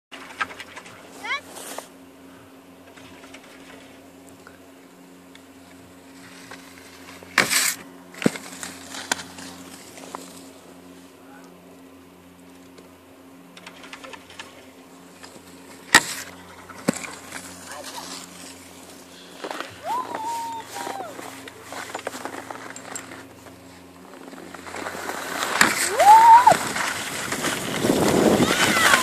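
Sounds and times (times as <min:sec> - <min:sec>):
faint steady hum: 0:00.2 - 0:29.0
skis scraping across snow: 0:00.9 - 0:02.0, 0:05.7 - 0:11.1, 0:15.1 - 0:29.0.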